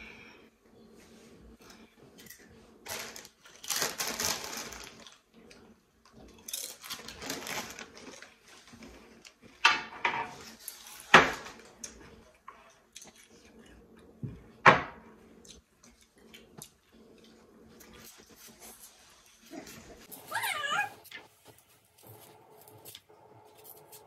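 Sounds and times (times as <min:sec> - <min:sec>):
paper and snack bag crinkling: 0:02.9 - 0:05.3, 0:06.4 - 0:09.4.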